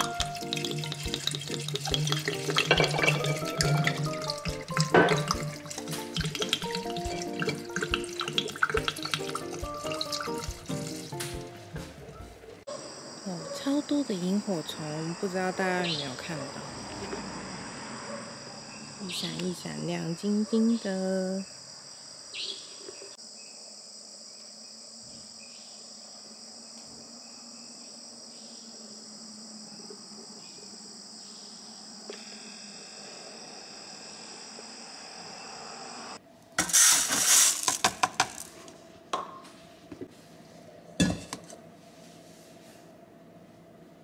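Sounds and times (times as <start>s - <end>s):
night insects chirring: 0.0s - 11.5s, 12.6s - 39.7s
dishes and utensils clattering: 0.0s - 12.1s, 41.0s - 41.6s.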